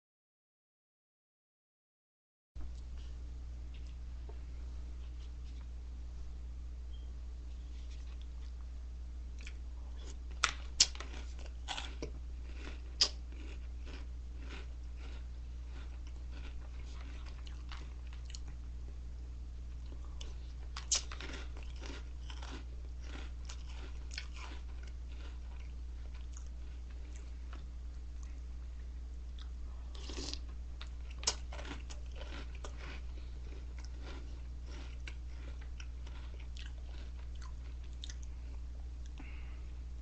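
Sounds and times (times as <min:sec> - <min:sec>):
low hum: 0:02.6 - 0:40.0
chewing crunchy cereal: 0:07.7 - 0:08.6, 0:09.4 - 0:18.7, 0:19.7 - 0:39.5.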